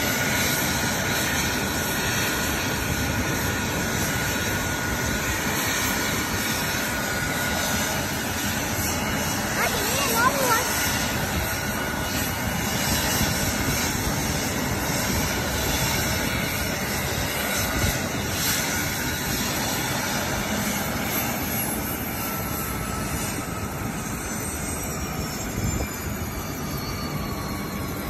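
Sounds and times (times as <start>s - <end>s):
helicopter turbine and rotor rush: 0.0s - 28.0s
faint high whine: 21.0s - 28.0s.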